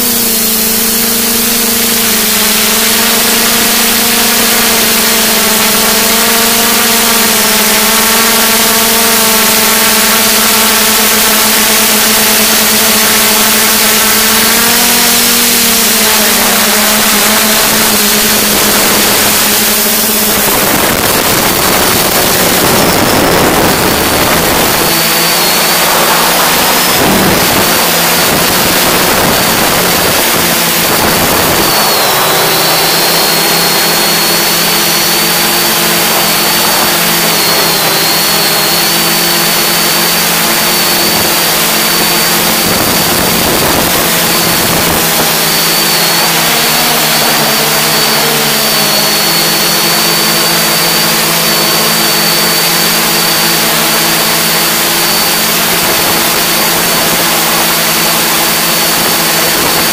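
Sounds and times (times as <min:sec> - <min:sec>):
drone motors humming and whining: 0:00.0 - 0:59.9
rush of air: 0:17.8 - 0:38.4.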